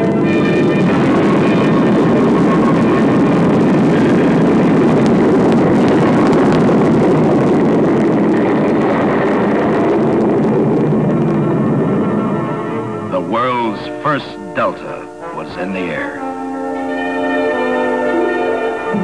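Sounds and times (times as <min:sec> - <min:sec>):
jet engine roaring at takeoff: 0:00.0 - 0:19.0.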